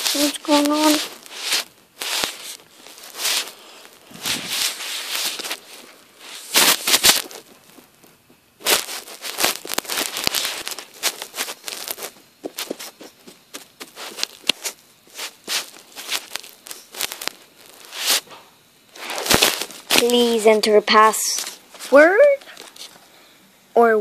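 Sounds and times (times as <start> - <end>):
crackling bursts and clicks: 0.0 - 23.1.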